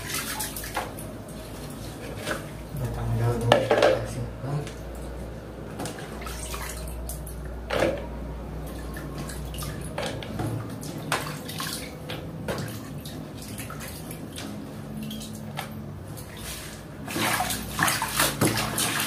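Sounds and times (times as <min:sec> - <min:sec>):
water splashing: 0:00.0 - 0:03.9, 0:05.8 - 0:07.8, 0:08.6 - 0:19.0
water sloshing and dripping: 0:00.0 - 0:19.0.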